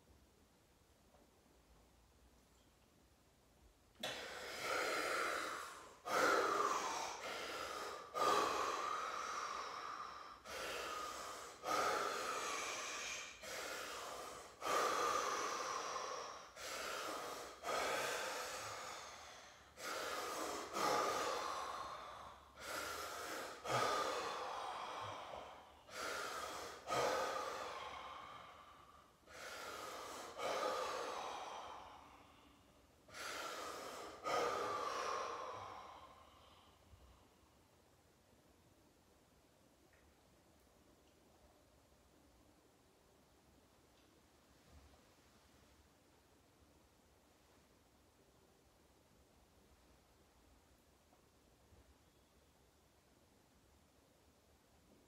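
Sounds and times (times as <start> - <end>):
man breathing heavily: 4.0 - 37.4.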